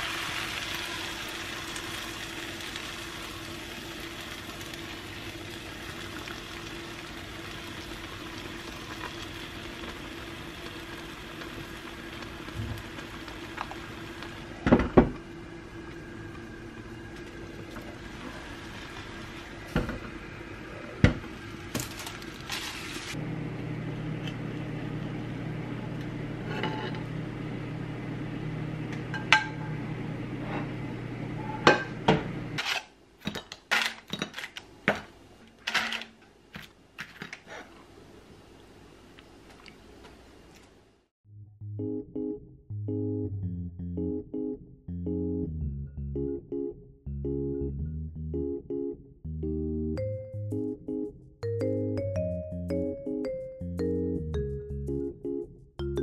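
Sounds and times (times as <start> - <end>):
dishes clattering: 29.1 - 29.7
pans and utensils clinking: 29.1 - 29.7.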